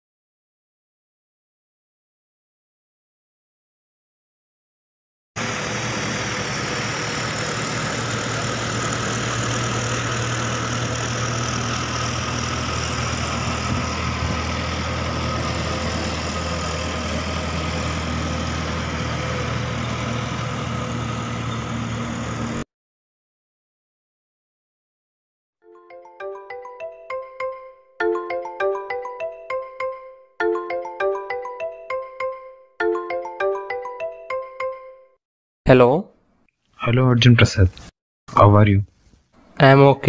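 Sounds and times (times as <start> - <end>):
road traffic engine hum: 5.4 - 22.6.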